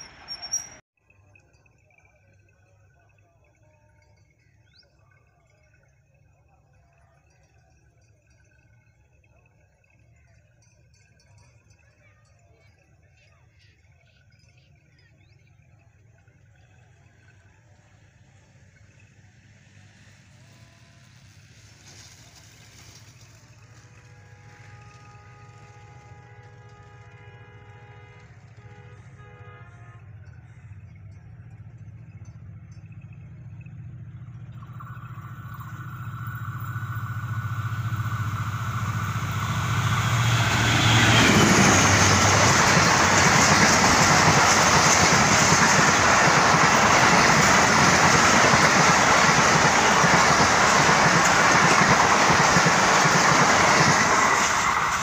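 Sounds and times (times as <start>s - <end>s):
diesel locomotive drone: 0.0s - 0.8s, 16.2s - 55.0s
train wheels rumbling on rails: 20.0s - 29.1s, 30.6s - 55.0s
distant train horn: 23.6s - 30.8s, 34.9s - 47.6s.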